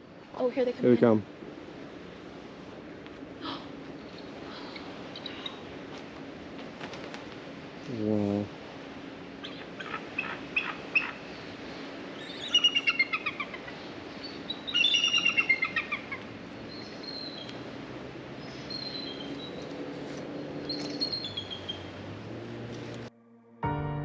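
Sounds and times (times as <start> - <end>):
eagles chittering calls: 4.0 - 5.7, 9.4 - 17.7, 18.4 - 22.1.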